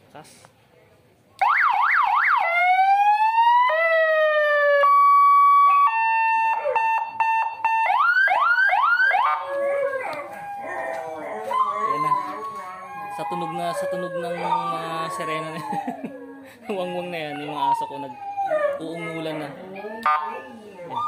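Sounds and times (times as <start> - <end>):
electronic siren wailing and yelping: 1.4 - 16.0, 16.8 - 21.0
dog howling: 8.7 - 21.0.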